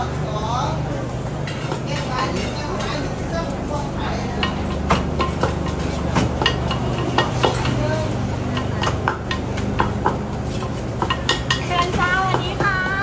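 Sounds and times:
pestle pounding in wooden mortar: 4.2s - 13.0s.

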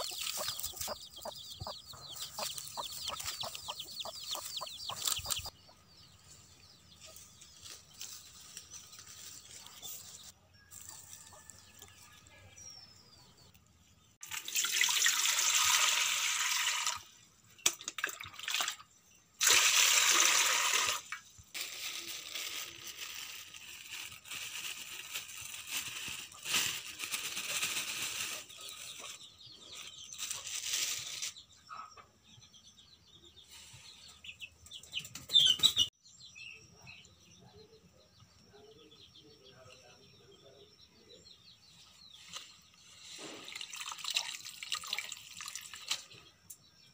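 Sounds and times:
water splashing in a pot: 14.2s - 21.2s, 43.4s - 46.1s.

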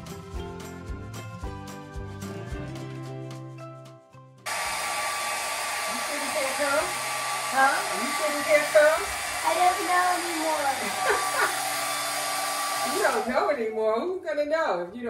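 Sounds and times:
hair dryer blowing: 4.5s - 13.7s.

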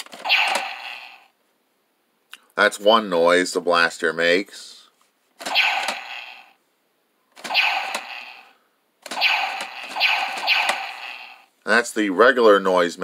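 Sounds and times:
toy blaster shot effect: 0.1s - 1.3s, 5.4s - 6.6s, 7.4s - 11.5s.

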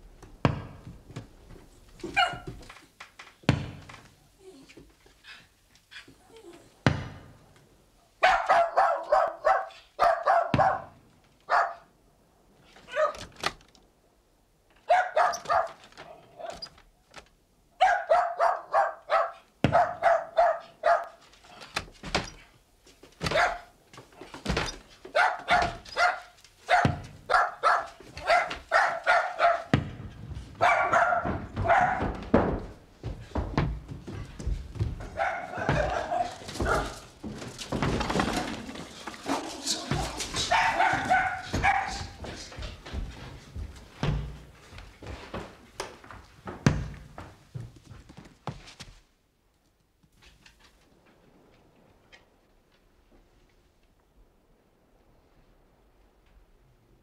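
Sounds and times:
small dog barking: 2.0s - 2.6s, 8.2s - 11.9s, 12.8s - 13.3s, 14.8s - 15.8s, 17.8s - 21.2s, 23.2s - 23.8s, 25.1s - 29.8s, 30.6s - 32.2s, 35.0s - 37.1s, 39.2s - 42.3s.

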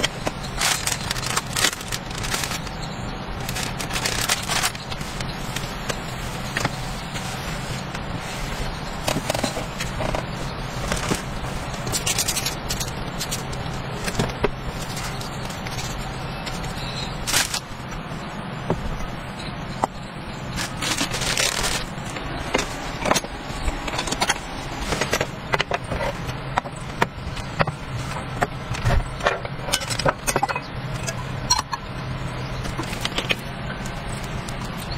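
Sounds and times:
plastic packet crinkling: 0.0s - 2.8s, 3.4s - 6.8s, 17.2s - 17.8s, 20.5s - 22.2s
steady low hum: 0.0s - 34.9s.

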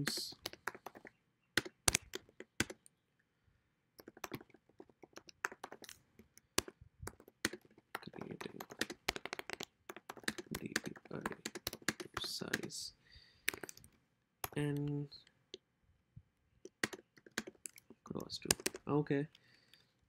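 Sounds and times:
typing on computer keyboard: 0.0s - 2.8s, 4.0s - 12.8s, 13.4s - 14.9s, 16.7s - 18.9s.

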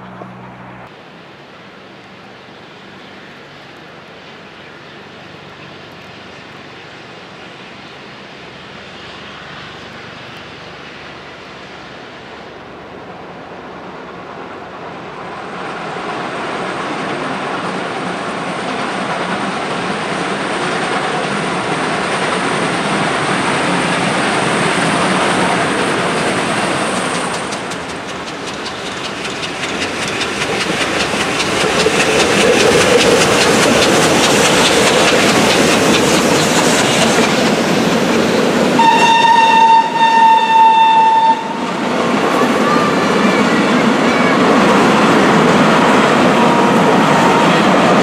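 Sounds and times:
train wheels clattering: 17.0s - 48.0s
train whistle: 38.8s - 41.8s.

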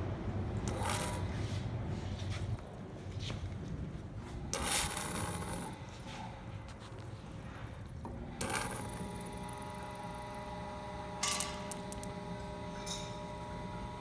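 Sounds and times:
pump humming: 8.1s - 14.0s.

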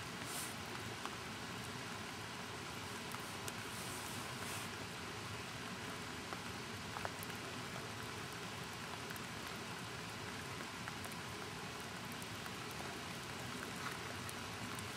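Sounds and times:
rain hissing: 0.0s - 14.9s
raindrops ticking: 4.9s - 14.9s.

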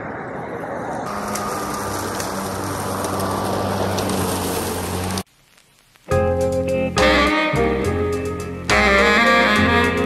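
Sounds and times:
electric lawn mower cutting grass: 1.1s - 5.3s.

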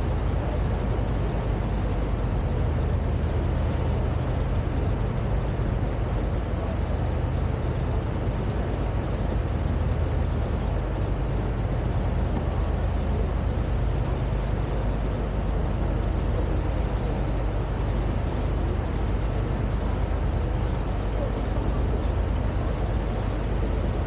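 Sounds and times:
boat engine droning: 0.0s - 24.0s
rush of noise: 0.0s - 24.0s.

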